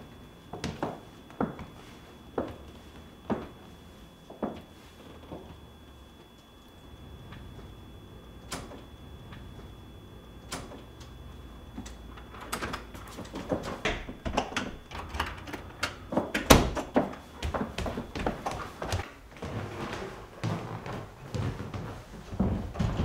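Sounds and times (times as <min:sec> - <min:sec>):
door clicks and knocks: 0:13.8 - 0:15.6, 0:16.3 - 0:17.0.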